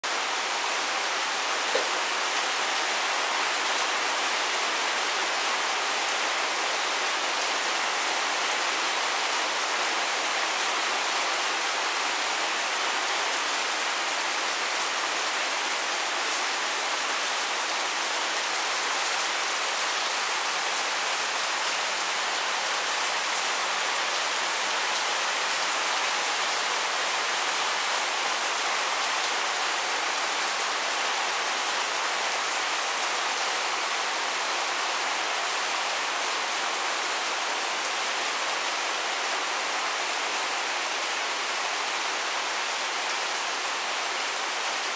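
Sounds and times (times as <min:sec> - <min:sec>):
heavy rain on leaves and paving: 0:00.0 - 0:44.9.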